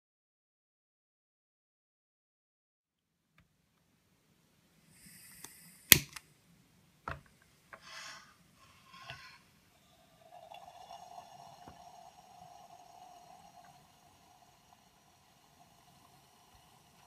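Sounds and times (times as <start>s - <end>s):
burner flame hissing: 4.9s - 6.1s, 7.8s - 17.0s.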